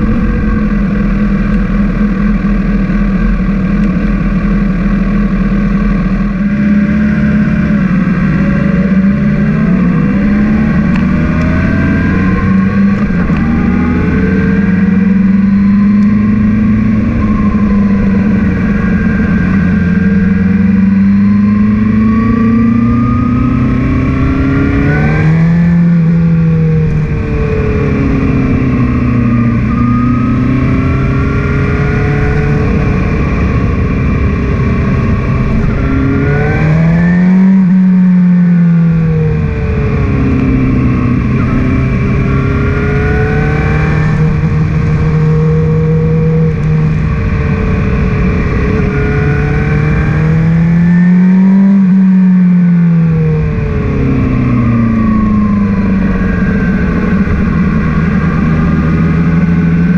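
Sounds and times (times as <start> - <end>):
wind rushing: 0.0 - 22.3
motorcycle engine revving: 0.0 - 59.9.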